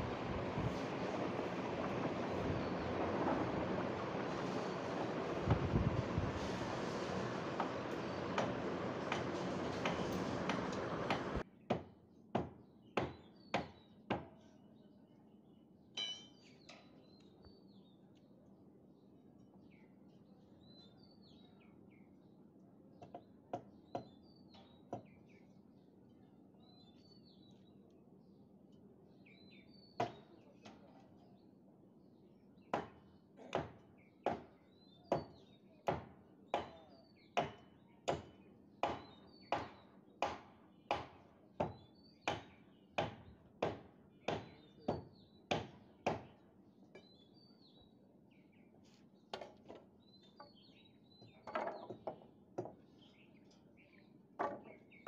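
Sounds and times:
birds chirping: 0:00.0 - 0:11.4
hammer strikes: 0:02.9 - 0:11.4.

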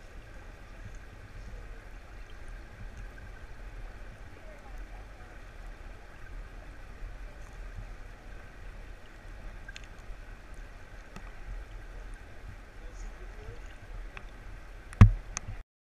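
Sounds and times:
underwater creek water flowing: 0:00.0 - 0:15.6
faint clicks: 0:09.6 - 0:11.4, 0:13.0 - 0:14.3.

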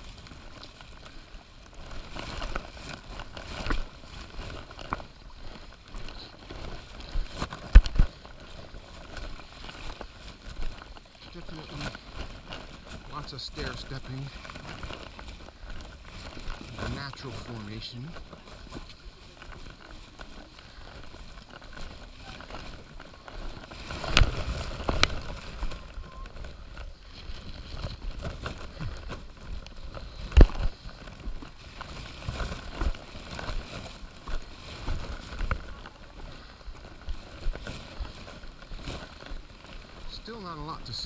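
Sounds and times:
footsteps on wet rock: 0:00.0 - 0:41.0.

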